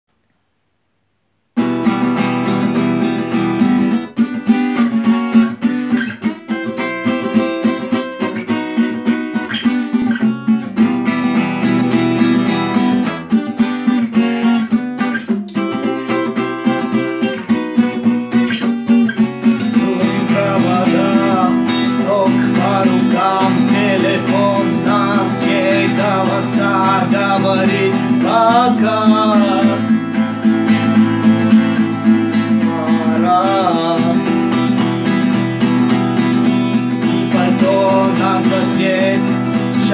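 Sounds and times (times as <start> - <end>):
acoustic guitar strumming: 1.6 - 39.9
man singing: 19.2 - 35.7, 36.4 - 39.9.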